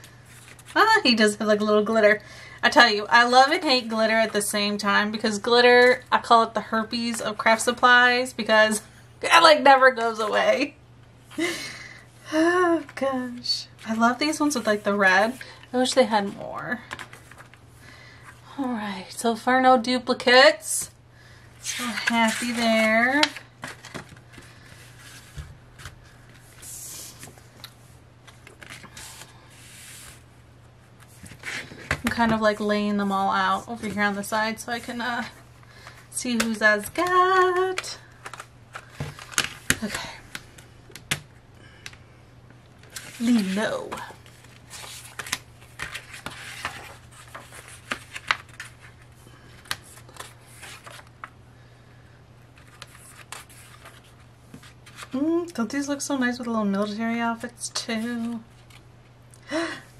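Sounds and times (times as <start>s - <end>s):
paper pages rustling: 0.0s - 0.8s, 16.8s - 17.6s, 35.7s - 40.0s, 42.8s - 51.4s, 52.5s - 55.2s
paper sliding rustle: 23.6s - 27.4s, 28.3s - 30.2s, 42.9s - 49.0s, 49.6s - 51.1s, 52.6s - 55.2s.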